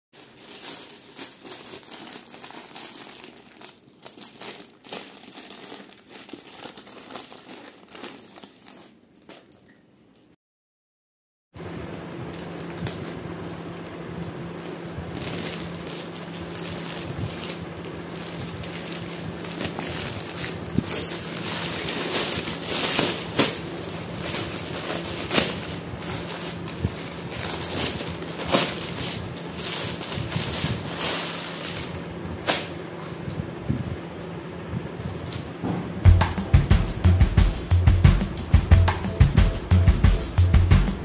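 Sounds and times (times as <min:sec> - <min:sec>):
plastic bag crinkling: 0:00.2 - 0:09.7, 0:11.6 - 0:34.4
scissors cutting plastic: 0:18.3 - 0:33.4.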